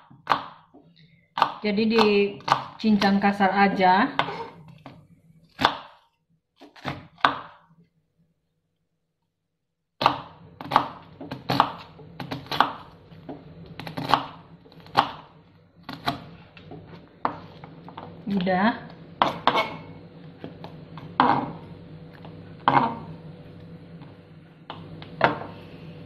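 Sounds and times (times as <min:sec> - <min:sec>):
knife chopping on plastic board: 0:00.0 - 0:00.7, 0:01.4 - 0:03.2, 0:05.5 - 0:07.6, 0:10.0 - 0:12.9, 0:13.8 - 0:15.3, 0:19.2 - 0:19.8.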